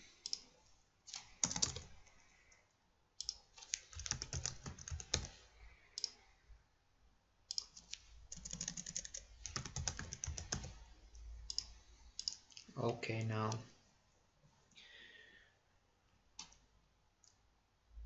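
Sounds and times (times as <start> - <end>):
typing on keyboard: 1.1 - 2.0, 3.2 - 5.4, 7.5 - 10.8, 11.5 - 12.4.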